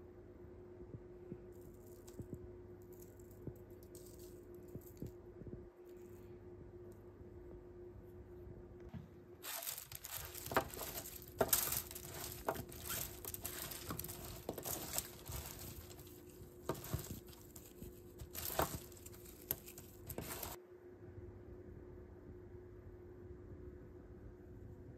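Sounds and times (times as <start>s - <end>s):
aluminium foil crinkling: 2.9s - 5.1s, 9.4s - 20.6s
broccoli florets rustling: 9.4s - 20.6s.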